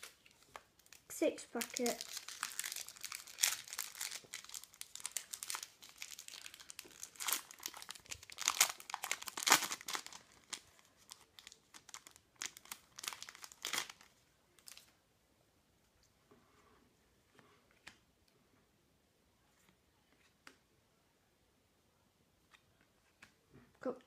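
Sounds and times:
foil wrapper crinkling: 0:01.6 - 0:14.8.

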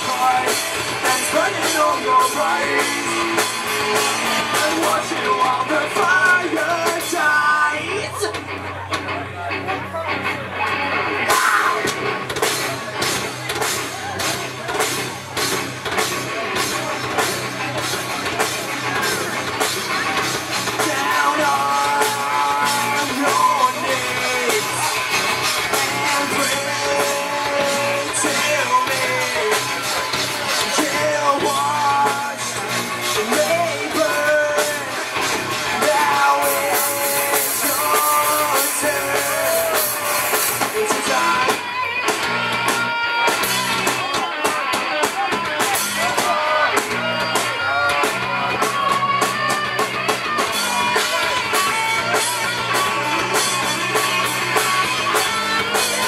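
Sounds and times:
person singing: 0:00.0 - 0:08.4, 0:20.6 - 0:42.0
live rock band: 0:00.0 - 0:56.0.

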